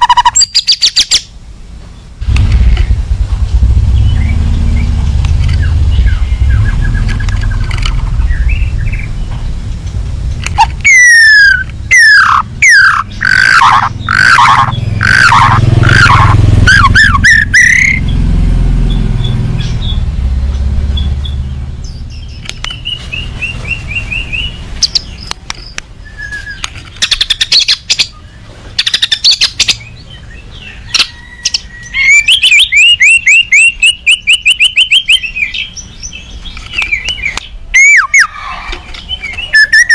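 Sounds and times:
songbird singing whistles and rattles: 0.0 - 1.3, 3.9 - 18.2, 18.8 - 39.9
low rumble: 2.2 - 24.7.

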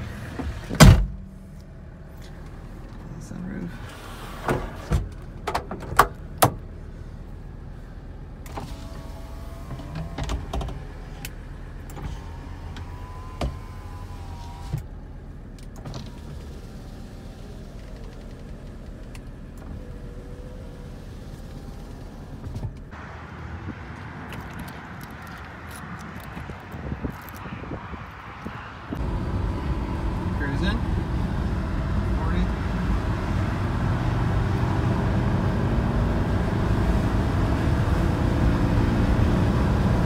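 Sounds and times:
electric window motor whining: 8.4 - 15.0.

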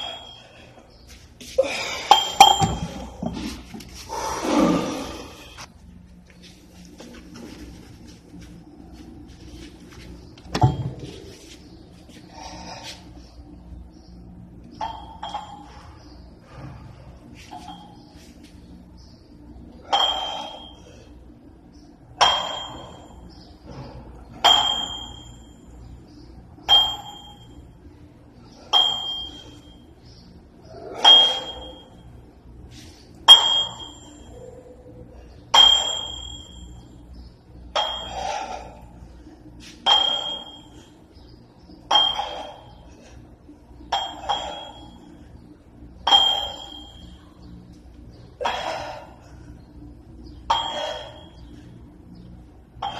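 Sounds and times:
dumbbell plates clinking: 0.0 - 0.6, 2.0 - 3.5, 14.8 - 15.8, 19.9 - 20.8, 22.2 - 23.2, 24.4 - 25.6, 26.7 - 27.5, 28.7 - 29.7, 30.9 - 32.0, 33.3 - 34.3, 35.5 - 36.8, 37.7 - 38.8, 39.8 - 40.9, 41.8 - 42.8, 43.9 - 45.1, 46.0 - 47.2, 50.5 - 51.5.

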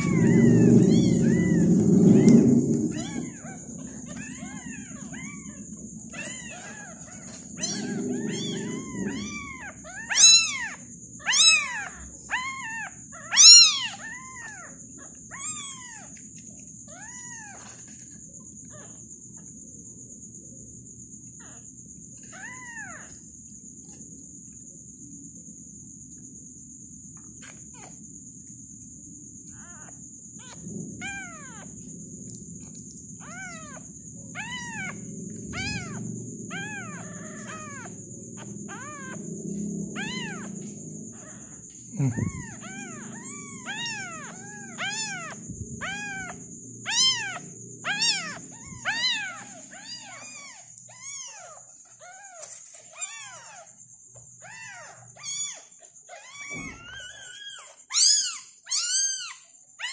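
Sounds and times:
kittens mewing: 0.0 - 16.1, 29.4 - 31.9, 32.6 - 39.3, 39.9 - 53.7, 54.4 - 59.9.

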